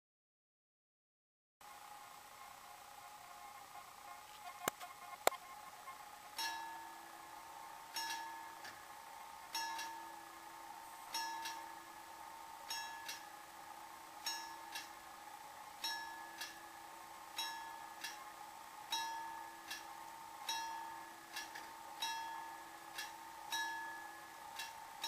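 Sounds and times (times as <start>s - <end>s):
level crossing warning bell ringing: 9.5s - 10.2s, 11.1s - 11.9s, 12.7s - 13.2s, 14.2s - 14.7s, 18.9s - 19.7s, 20.4s - 21.4s, 22.0s - 22.9s, 23.5s - 24.3s.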